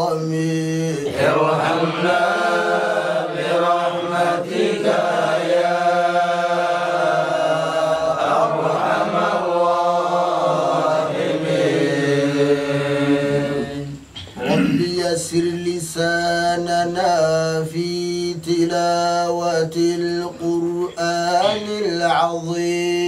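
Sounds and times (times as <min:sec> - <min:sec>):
man chanting: 0:00.0 - 0:02.8, 0:13.8 - 0:23.0.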